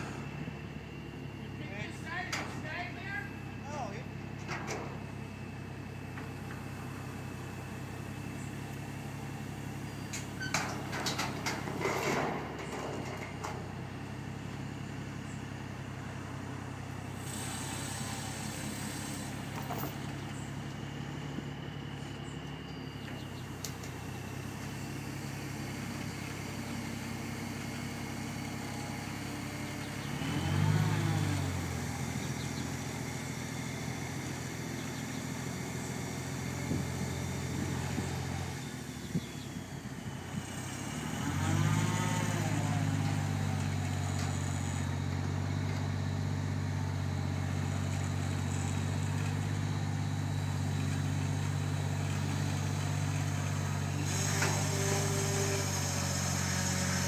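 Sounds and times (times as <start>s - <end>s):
truck engine revving: 0.0s - 3.6s, 23.0s - 57.0s.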